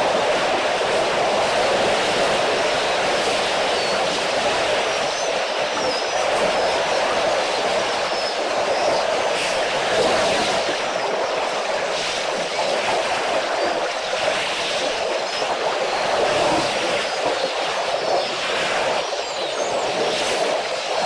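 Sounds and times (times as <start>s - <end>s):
water splashing and sloshing: 0.0s - 21.0s.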